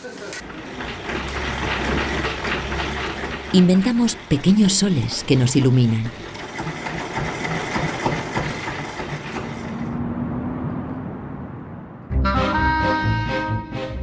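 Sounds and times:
electric generator running: 0:00.2 - 0:10.2
brass music: 0:12.1 - 0:14.0.

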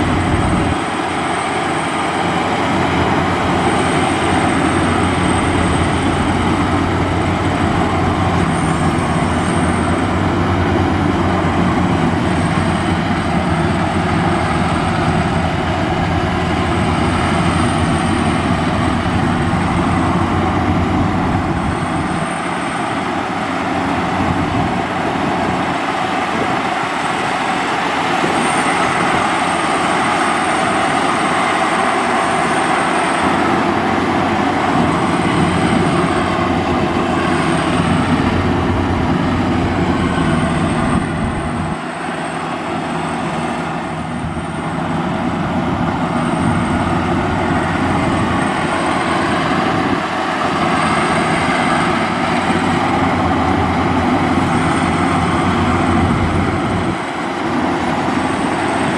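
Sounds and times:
combine harvester engine running: 0:00.0 - 0:58.9.

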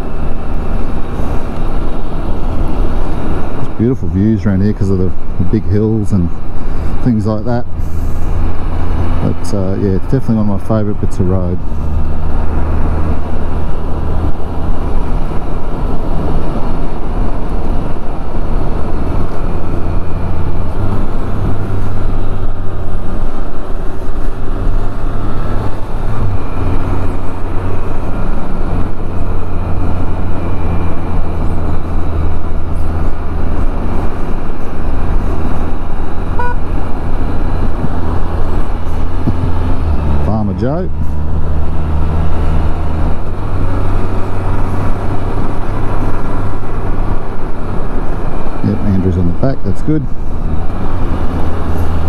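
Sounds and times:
wind rushing over microphone: 0:00.0 - 0:52.0
motorcycle engine running: 0:19.2 - 0:42.1.

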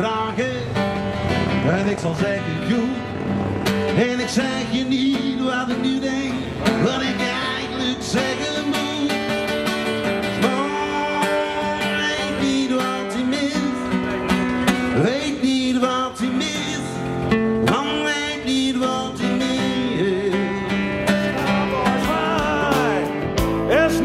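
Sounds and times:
acoustic guitar strumming: 0:00.0 - 0:24.0
live band playing: 0:20.5 - 0:24.0.

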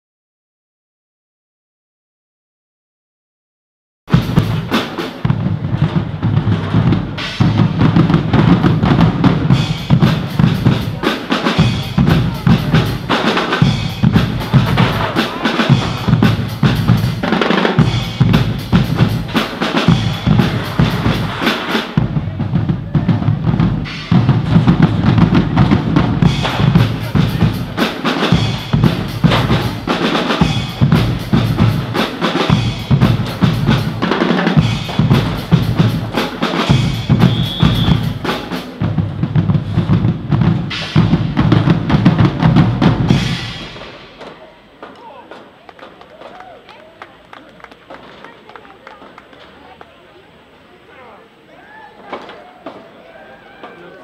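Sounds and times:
drums playing steady rhythm: 0:04.1 - 0:46.4.

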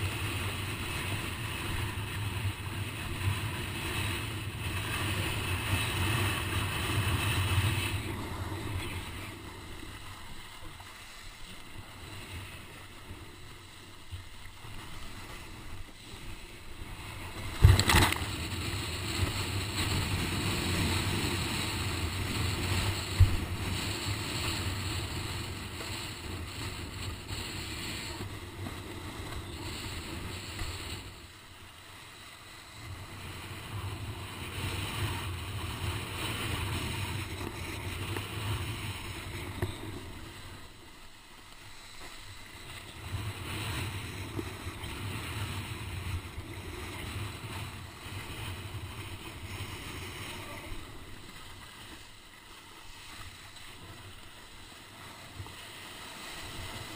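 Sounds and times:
water rushing past board: 0:14.1 - 0:27.9.

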